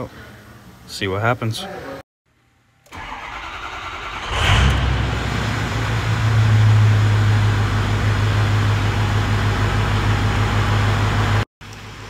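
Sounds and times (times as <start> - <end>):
diesel engine cranking: 2.9 - 7.7
diesel engine idling: 3.1 - 11.4.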